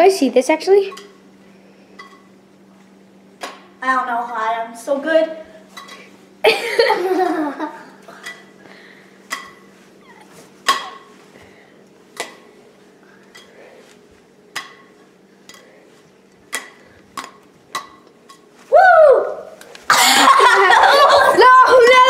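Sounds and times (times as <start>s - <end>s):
low steady hum: 0.0s - 22.0s.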